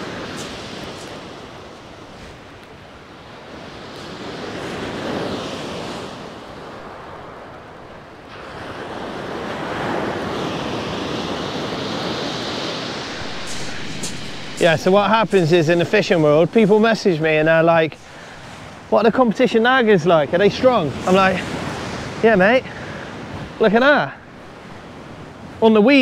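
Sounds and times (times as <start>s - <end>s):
wind buffeting microphone: 9.5s - 23.6s.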